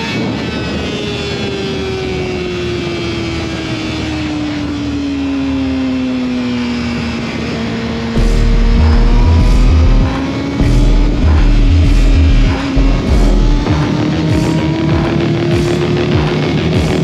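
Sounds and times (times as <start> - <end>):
motorcycle engine revs: 7.6 - 17.0
loud low rumble: 8.1 - 16.3.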